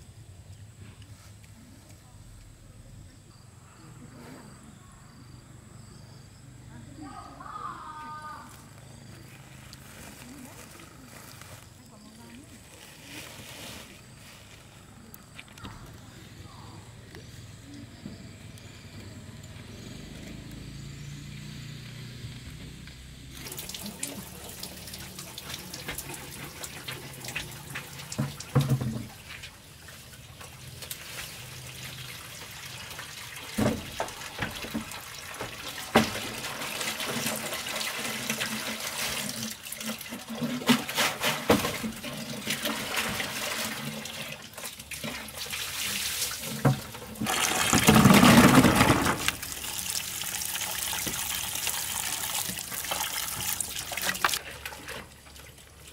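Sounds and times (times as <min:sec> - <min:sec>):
water splashing into a bucket: 0:23.3 - 0:55.9
bucket knocks: 0:28.0 - 0:29.4, 0:33.5 - 0:39.2, 0:40.0 - 0:43.8, 0:46.4 - 0:49.6, 0:50.9 - 0:51.4.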